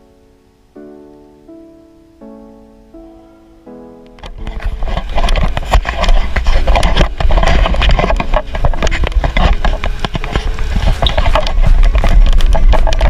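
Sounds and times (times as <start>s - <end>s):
rattle of clicks and knocks: 4.2s - 13.0s
wind rumbling on microphone: 4.2s - 13.0s.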